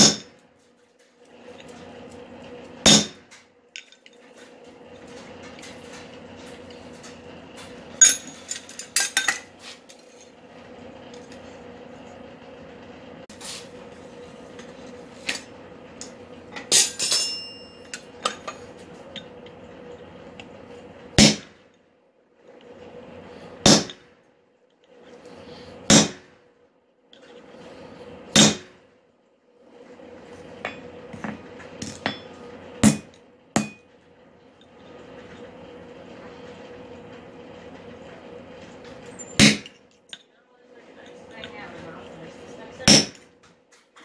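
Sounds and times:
hammer striking metal on anvil: 0:00.0 - 0:00.4, 0:02.8 - 0:03.3, 0:16.7 - 0:18.0, 0:21.2 - 0:21.5, 0:23.6 - 0:24.0, 0:25.9 - 0:26.2, 0:28.4 - 0:28.7, 0:31.8 - 0:33.8, 0:39.4 - 0:39.7, 0:42.9 - 0:43.2
steady hum: 0:00.0 - 0:43.5.

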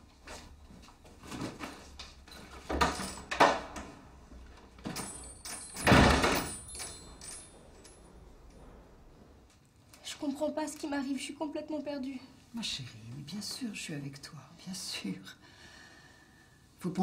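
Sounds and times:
door opening and shutting: 0:02.4 - 0:04.1, 0:04.8 - 0:09.2.

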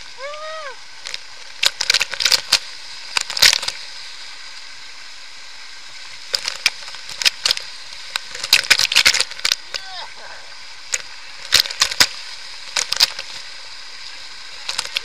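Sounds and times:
waterfall rushing: 0:00.0 - 0:01.0, 0:08.3 - 0:10.7
water crackling and splashing: 0:00.0 - 0:15.0
person voice: 0:00.2 - 0:00.8, 0:09.7 - 0:10.5.

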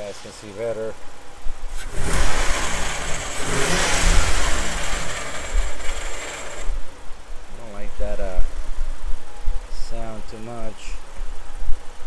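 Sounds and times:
car engine running: 0:01.7 - 0:07.1
starter grinding on flywheel: 0:01.8 - 0:06.8.

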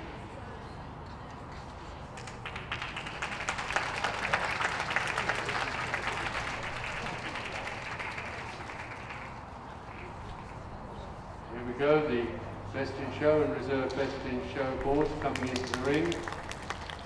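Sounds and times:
audience applauding: 0:02.2 - 0:09.5, 0:14.8 - 0:17.0.

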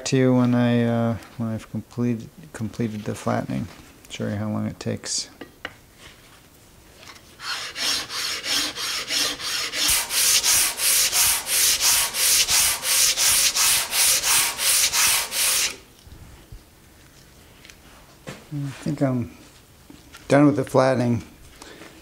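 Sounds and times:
plane scraping on sandpaper: 0:07.4 - 0:15.8.

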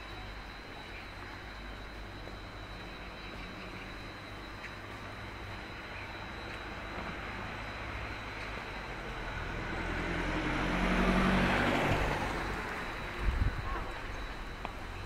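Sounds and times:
vehicle driving past: 0:07.1 - 0:14.2.

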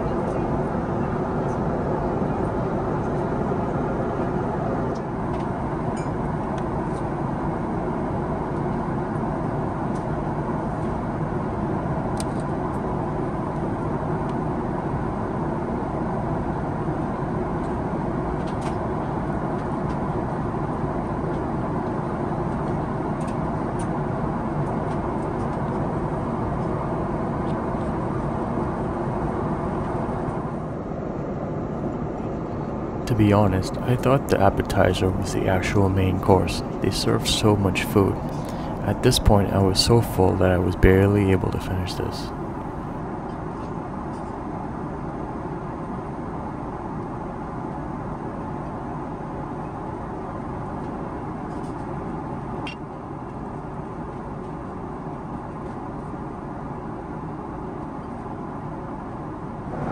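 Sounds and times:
airliner cabin engine rumble: 0:00.0 - 0:43.0.

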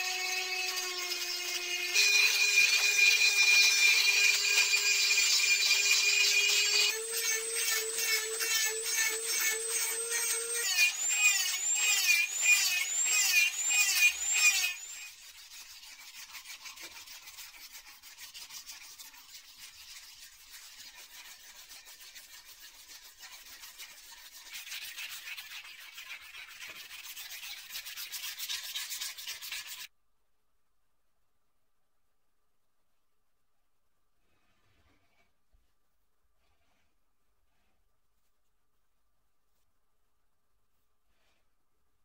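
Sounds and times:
power tool whining: 0:00.0 - 0:15.1
rubbing and scraping: 0:13.6 - 0:29.9, 0:34.2 - 0:39.9, 0:40.7 - 0:41.6.

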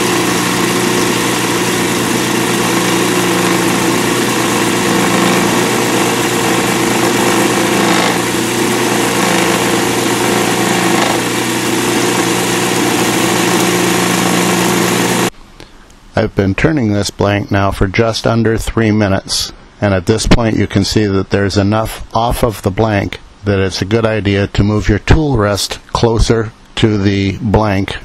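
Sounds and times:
chisel cutting hiss: 0:00.0 - 0:15.3
lathe motor hum: 0:00.0 - 0:15.3.

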